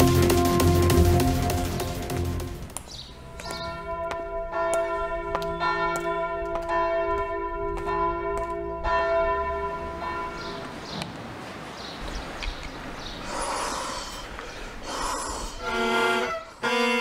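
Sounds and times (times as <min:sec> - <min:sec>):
church bells ringing: 0:03.2 - 0:10.8.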